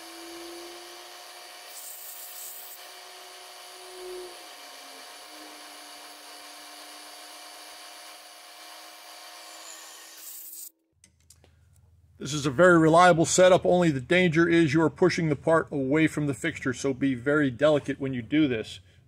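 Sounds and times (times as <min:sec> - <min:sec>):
milling machine spindle whine: 0:00.0 - 0:09.8
end mill cutting metal: 0:00.0 - 0:10.7.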